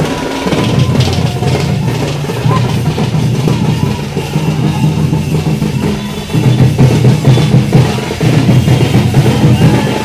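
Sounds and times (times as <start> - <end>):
marching drums: 0.0 - 10.0.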